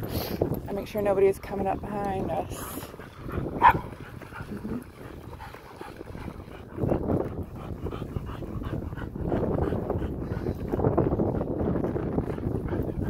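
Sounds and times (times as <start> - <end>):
dog barking: 3.6 - 3.9.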